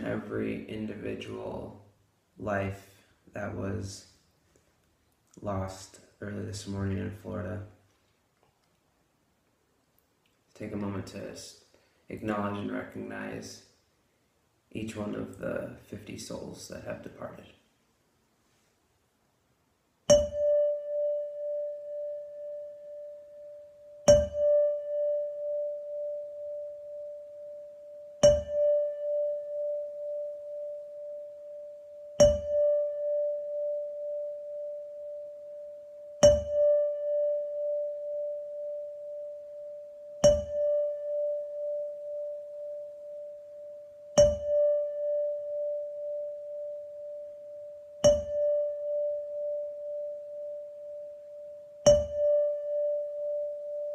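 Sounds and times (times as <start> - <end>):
tuning fork tap: 20.0 - 53.9
tuning fork ringing tone: 20.1 - 53.9.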